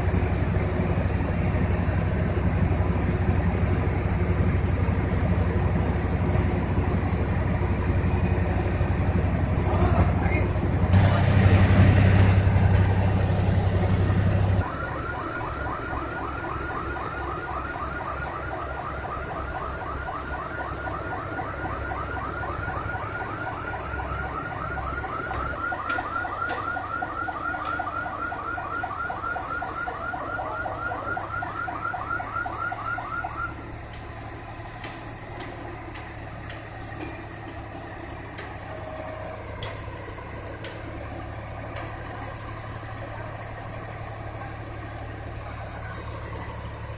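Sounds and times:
heavy engine running loudly: 0.0s - 31.8s
low engine hum: 0.0s - 46.9s.

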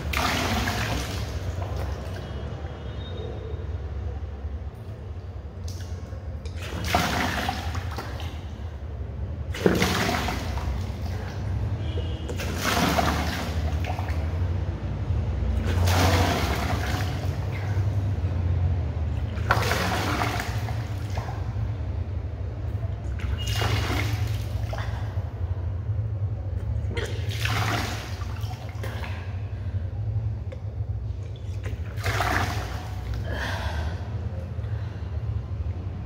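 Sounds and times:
steady low hum: 3.5s - 36.0s
woman retching up water: 26.8s - 27.9s.

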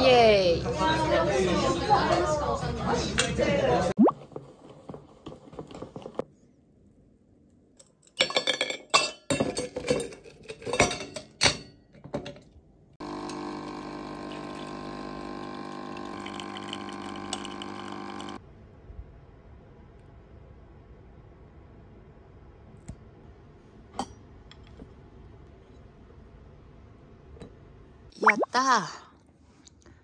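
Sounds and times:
drink machine humming: 13.0s - 18.4s.

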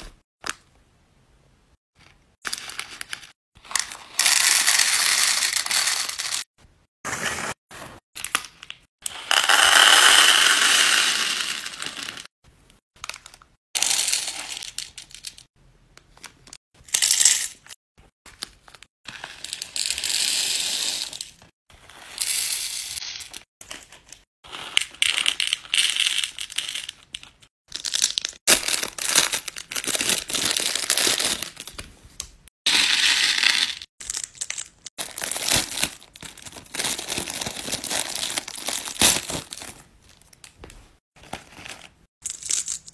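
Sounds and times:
beads rattling into plastic boxes: 3.7s - 6.5s, 9.2s - 12.3s, 13.0s - 15.5s, 27.7s - 31.7s, 32.7s - 40.5s, 41.2s - 42.9s
foil bag crinkling: 27.9s - 31.7s, 34.0s - 40.3s.

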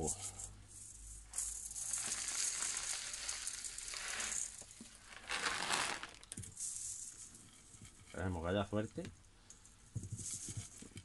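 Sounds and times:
gritty soil rattling from tray: 0.8s - 9.0s.

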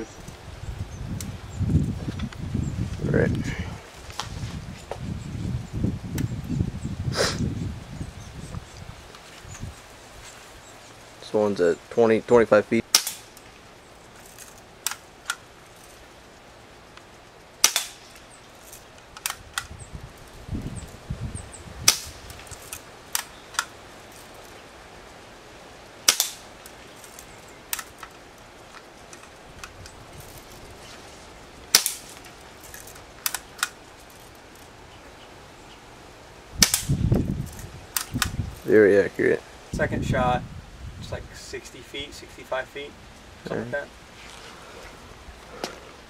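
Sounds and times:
air pistol pops: 12.9s - 13.3s, 17.6s - 18.1s, 21.8s - 22.4s, 26.0s - 26.5s, 31.7s - 32.2s, 36.6s - 37.0s.

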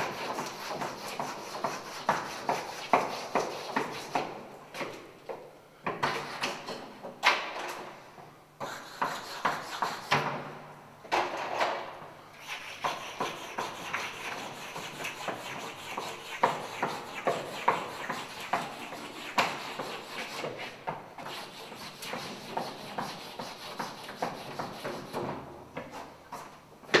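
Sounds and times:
chalk scratching on blackboard: 0.0s - 4.3s, 8.6s - 10.2s, 12.4s - 25.2s.

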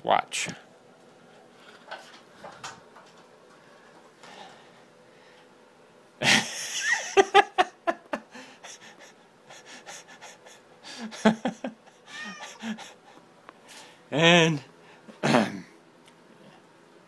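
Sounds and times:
cat meowing: 12.1s - 12.7s.

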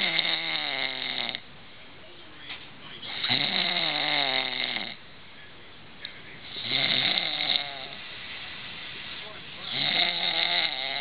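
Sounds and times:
man snoring loudly: 0.0s - 1.4s, 3.1s - 5.0s, 6.5s - 8.0s, 9.6s - 11.0s.

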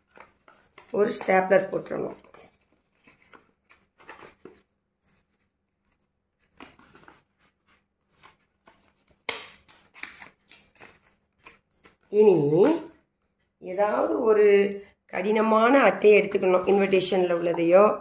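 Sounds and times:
card rustling: 0.0s - 13.5s.

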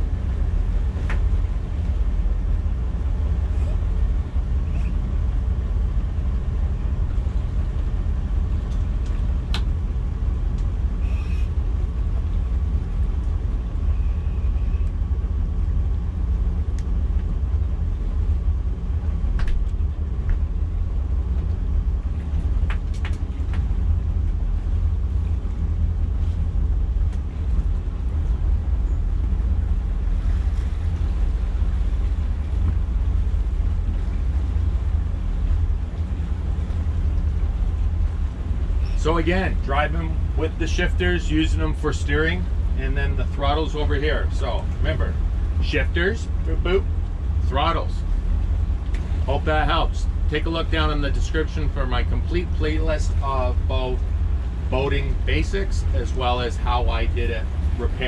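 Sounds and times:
boat engines rumbling: 0.0s - 58.0s
faint clicks: 16.7s - 17.3s.

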